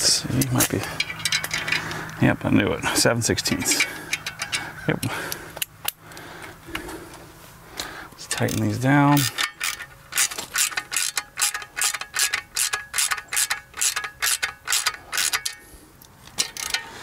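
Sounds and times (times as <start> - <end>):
ratchet wrench clicking: 1.0 - 1.9, 3.7 - 4.7, 8.3 - 17.0.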